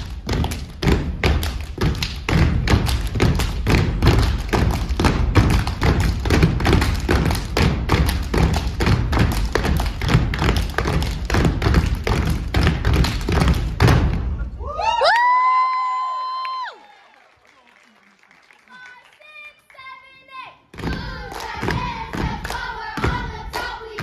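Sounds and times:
hands clapping: 0.0s - 14.0s, 16.4s - 20.1s, 20.8s - 24.0s
boots stomping on stage: 0.0s - 14.3s.

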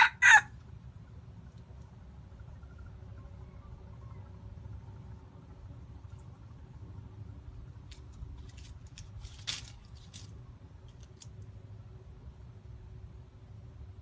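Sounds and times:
low steady rumble: 0.0s - 14.0s
rooster scratching in dry leaves: 7.8s - 11.4s.

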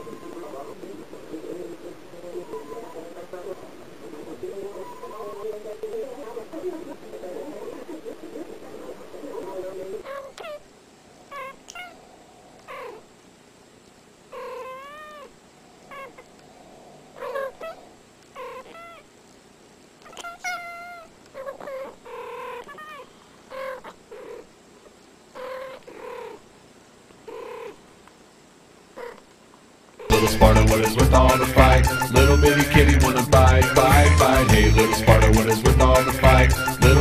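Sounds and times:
cats meowing: 0.0s - 0.8s, 2.3s - 3.2s, 4.6s - 5.5s, 11.3s - 12.0s, 14.3s - 16.4s, 17.2s - 19.0s, 20.0s - 24.5s, 25.4s - 26.4s.

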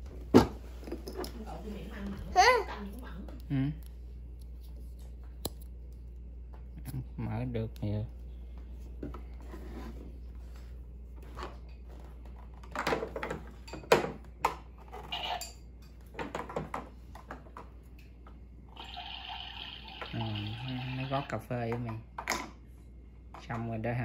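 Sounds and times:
small pump running: 18.7s - 21.5s.

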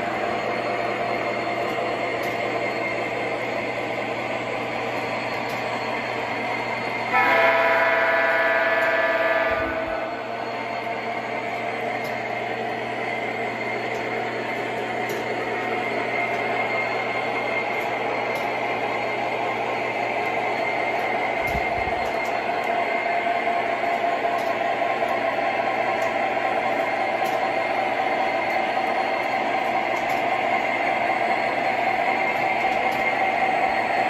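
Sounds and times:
model train motors whirring: 0.0s - 34.0s.

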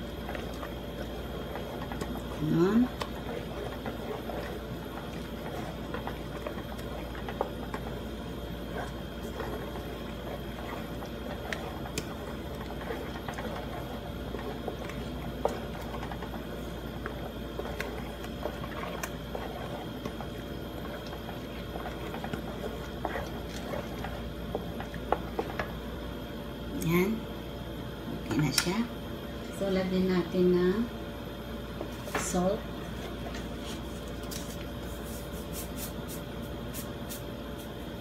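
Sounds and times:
tomato sauce simmering: 0.0s - 26.6s.

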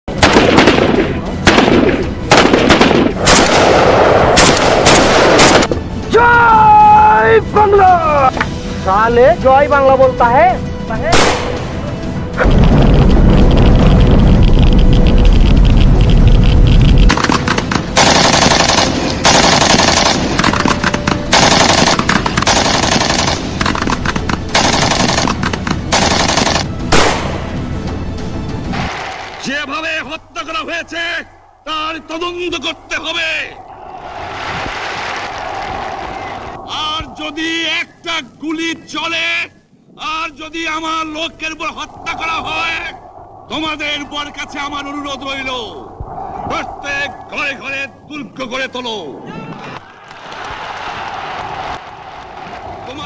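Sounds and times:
rifle shots echoing: 0.1s - 5.7s, 11.1s - 11.8s, 17.1s - 27.5s
machine-gun fire bursts: 0.2s - 3.8s, 17.1s - 20.7s, 21.3s - 23.8s, 24.5s - 27.2s.

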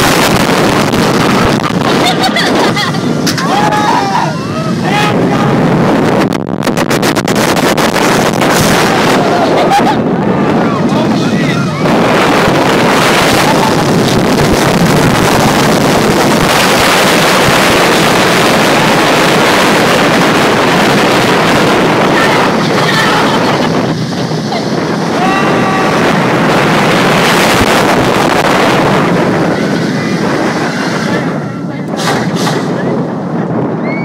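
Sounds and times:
roller coaster running noise: 0.0s - 34.0s
wind rushing over microphone: 0.0s - 34.0s.

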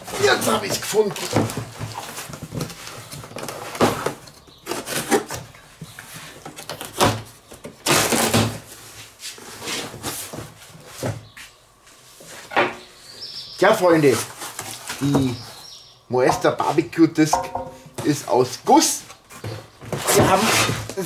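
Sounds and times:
cardboard flaps scraping and rustling: 0.0s - 11.4s, 13.9s - 15.6s, 18.8s - 21.0s
knife slitting packing tape: 4.6s - 5.4s, 7.8s - 8.6s.

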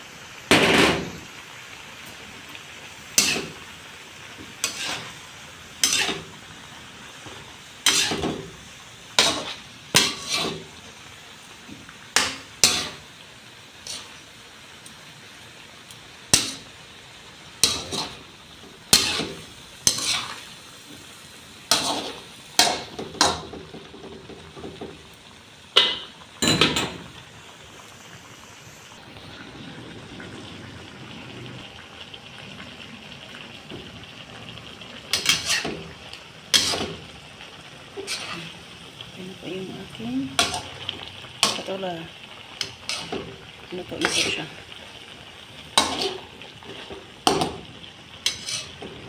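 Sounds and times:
food sizzling: 0.0s - 49.0s
spatula scraping metal pan: 4.6s - 5.2s, 5.8s - 6.3s, 7.8s - 8.4s, 9.2s - 10.7s, 12.2s - 13.0s, 13.8s - 14.2s, 18.9s - 20.5s, 21.7s - 22.7s, 35.1s - 35.9s, 36.5s - 37.0s, 38.0s - 38.6s, 42.6s - 43.3s, 48.2s - 49.0s.

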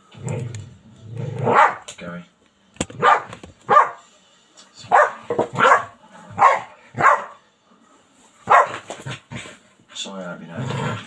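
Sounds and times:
dog barking: 1.4s - 1.9s, 3.0s - 4.0s, 4.9s - 7.4s, 8.4s - 8.9s.

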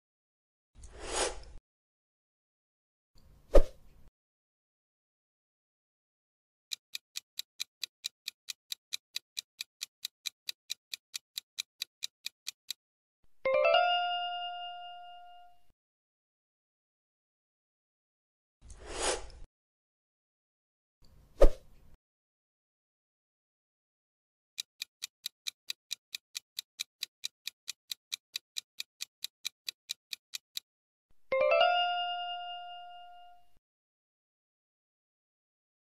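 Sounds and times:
ticking clock: 6.7s - 12.8s, 24.6s - 30.7s.

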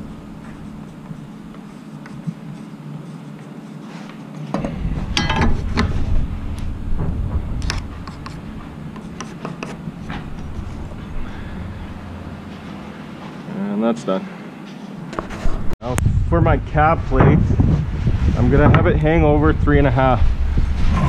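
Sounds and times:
marker scratching on wood: 0.4s - 4.5s, 8.0s - 11.1s
clicks and knocks of metal and lumber: 4.4s - 6.1s
low rumble: 4.6s - 9.1s, 9.8s - 13.0s, 15.6s - 21.0s.

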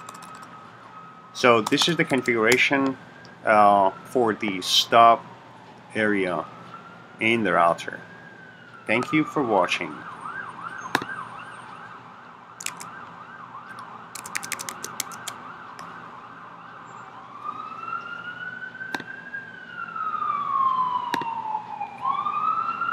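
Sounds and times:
emergency vehicle siren: 0.0s - 22.9s
sharp clicks: 12.6s - 13.0s, 13.7s - 15.4s.

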